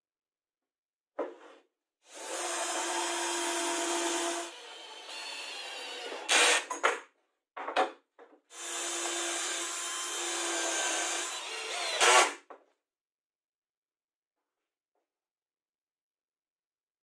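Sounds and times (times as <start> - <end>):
cordless drill whining: 2.2 - 6.6, 8.6 - 12.3.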